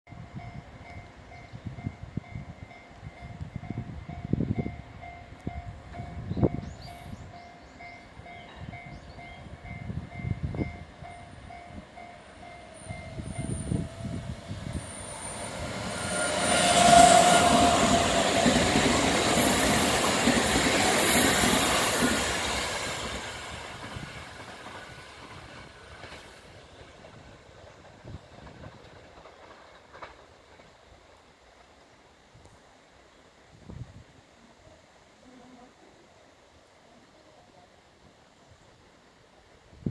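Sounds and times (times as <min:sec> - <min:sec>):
train passing at speed: 0:00.1 - 0:33.9
pulsing warning tone: 0:09.8 - 0:18.2.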